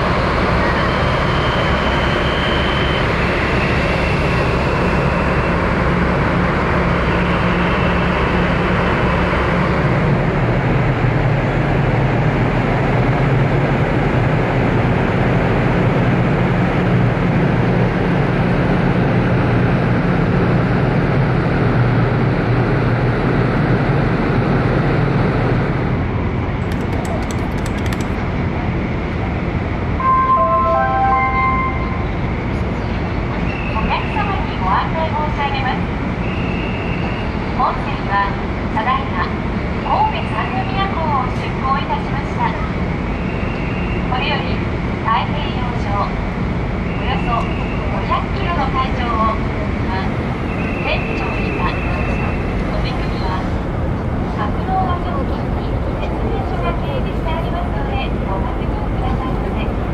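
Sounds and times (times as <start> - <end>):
ship machinery humming: 26.4 - 28.6.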